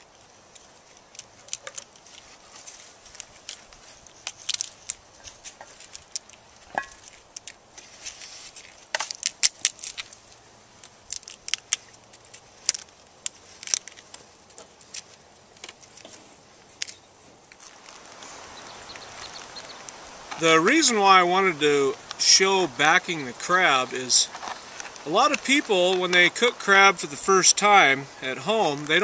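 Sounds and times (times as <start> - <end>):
crab shell cracking and clicking: 0.5 - 2.3, 3.1 - 7.6, 8.6 - 15.9
paper rustling: 0.6 - 20.8.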